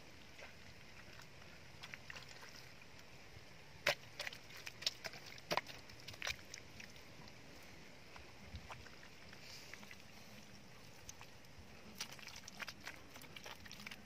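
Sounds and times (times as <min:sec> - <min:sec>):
hand patting wet mud: 0:03.8 - 0:07.0.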